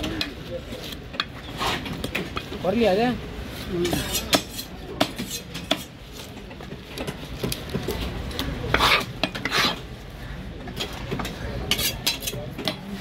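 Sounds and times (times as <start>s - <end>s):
knife scraping fish scales: 3.9s - 5.9s, 8.7s - 9.8s, 11.7s - 12.4s.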